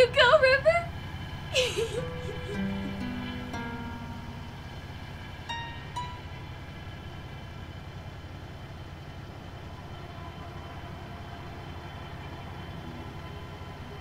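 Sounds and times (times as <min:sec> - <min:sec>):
low rumbling drone: 0:00.0 - 0:14.0.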